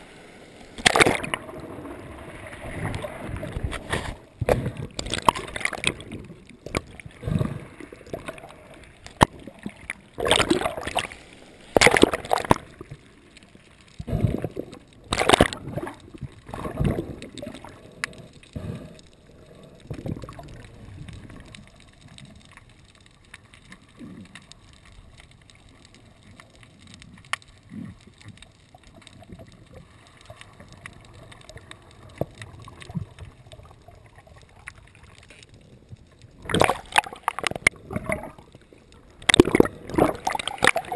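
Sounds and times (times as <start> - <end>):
water sloshing and gurgling: 0.0 - 40.9
small clicks: 10.9 - 40.9.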